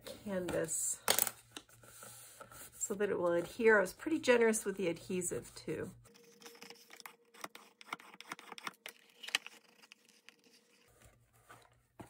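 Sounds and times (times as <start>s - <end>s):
bone folder scratching paper: 6.2s - 10.9s.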